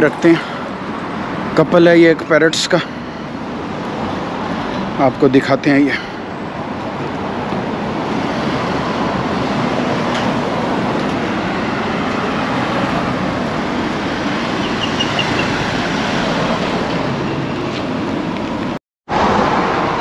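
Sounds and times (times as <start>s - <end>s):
street traffic rushing: 0.0s - 20.0s.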